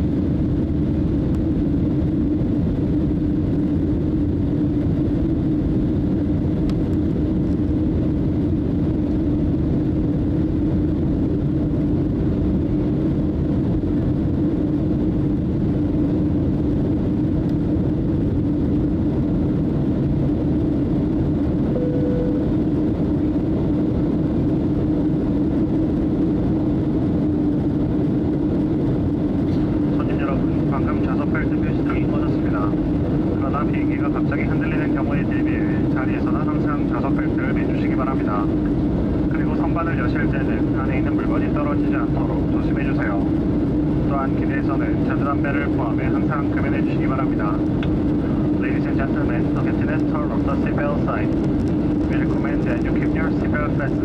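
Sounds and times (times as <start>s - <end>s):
airplane cabin drone: 0.0s - 54.0s.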